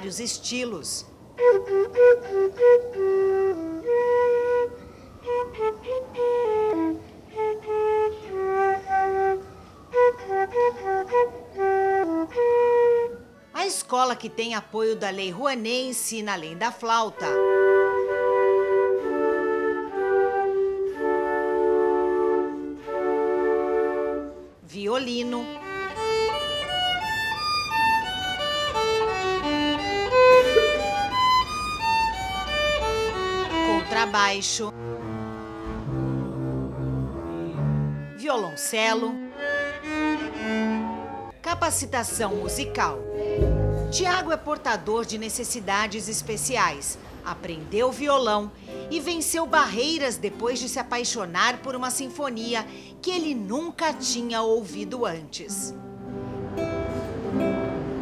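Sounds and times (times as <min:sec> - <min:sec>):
flute melody: 0:01.2 - 0:13.8, 0:17.2 - 0:24.6, 0:25.4 - 0:34.1.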